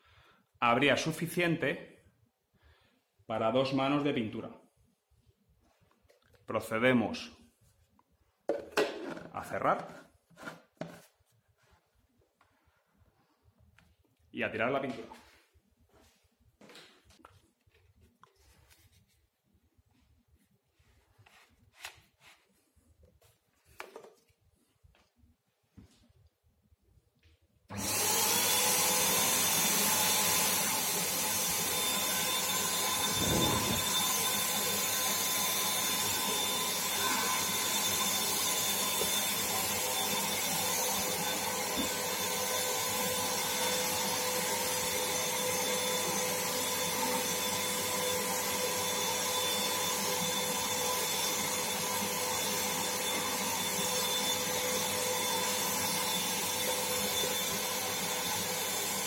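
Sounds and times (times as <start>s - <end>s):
paint spray gun motor whine: 27.7s - 59.0s.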